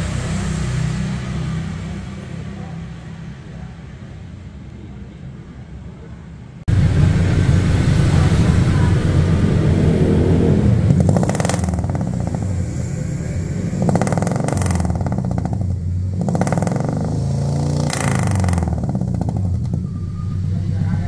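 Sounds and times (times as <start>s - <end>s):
engine idling with throttle blips: 6.7s - 21.0s.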